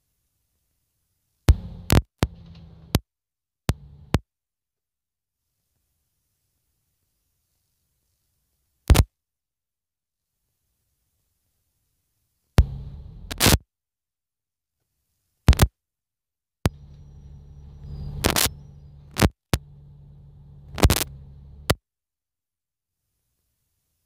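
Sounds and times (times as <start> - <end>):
low steady bus drone: 1.5 - 3.0, 3.7 - 4.2, 12.6 - 13.5, 16.7 - 21.8
sharp clicks or knocks: 1.5 - 3.0, 20.7 - 21.8.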